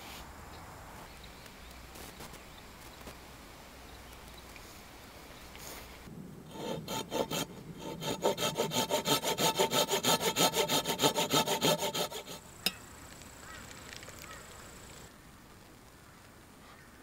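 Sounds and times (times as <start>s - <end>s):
hand saw cutting wood: 6.5s - 12.4s.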